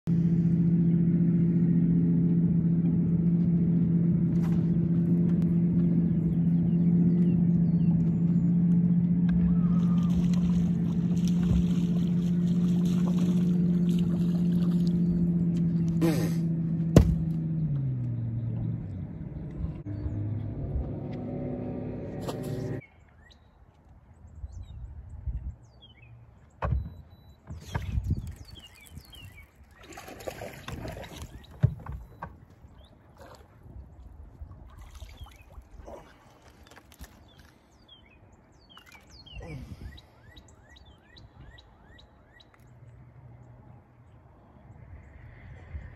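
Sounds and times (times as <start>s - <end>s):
loud low thumps: 16.9s - 17.4s
small birds chirping: 24.2s - 33.4s, 34.9s - 43.6s.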